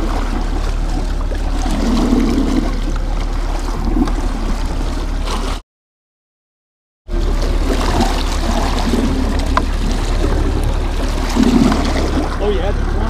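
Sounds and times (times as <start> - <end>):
outboard motor running: 0.0 - 5.6, 7.1 - 13.0
water churning and splashing: 0.0 - 5.6, 7.1 - 13.0
wind on microphone: 7.1 - 13.0.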